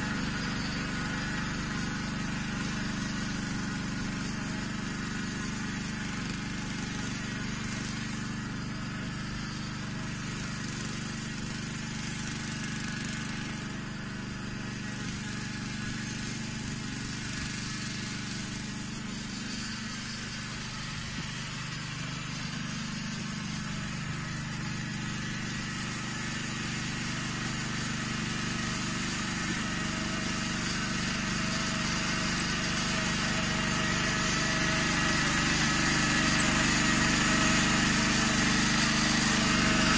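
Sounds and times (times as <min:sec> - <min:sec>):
walking tractor engine running: 0:00.0 - 0:39.9.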